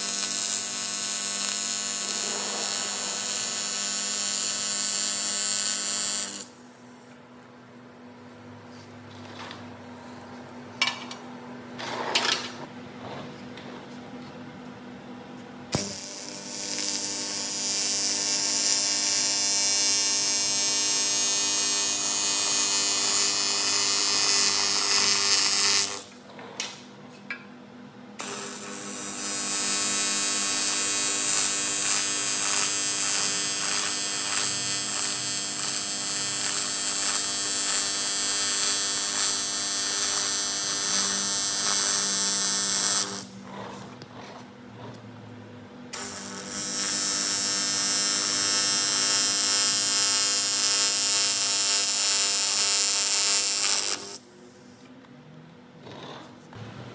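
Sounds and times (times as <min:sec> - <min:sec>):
welding arc buzzing: 0:00.0 - 0:06.8, 0:15.7 - 0:26.8, 0:28.2 - 0:43.8, 0:45.9 - 0:54.8
welding arc striking click: 0:15.7 - 0:18.9, 0:28.2 - 0:43.2, 0:46.0 - 0:54.2.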